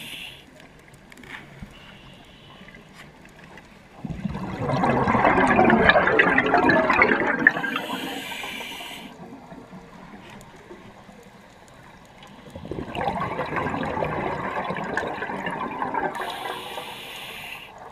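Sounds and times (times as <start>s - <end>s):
regulator breath hiss: 0.0s - 0.5s, 7.6s - 9.2s, 16.2s - 17.8s
gurgling bubbles underwater: 3.9s - 17.9s.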